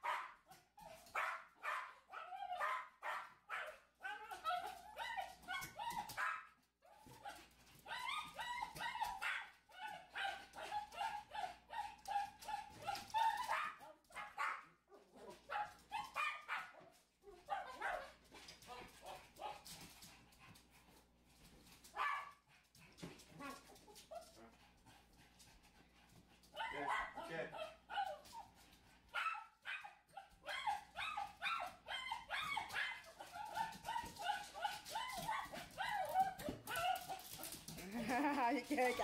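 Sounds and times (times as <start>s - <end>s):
dogs barking: 0.0s - 0.5s, 1.2s - 6.4s, 7.1s - 16.8s, 22.0s - 22.4s, 26.5s - 28.3s, 29.1s - 37.7s
small dogs whining and yipping: 3.5s - 14.5s, 26.6s - 28.5s, 29.1s - 37.6s.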